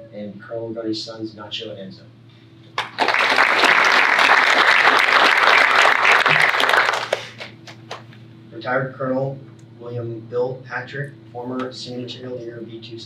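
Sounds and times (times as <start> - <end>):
audience applauding: 2.8 - 8.0.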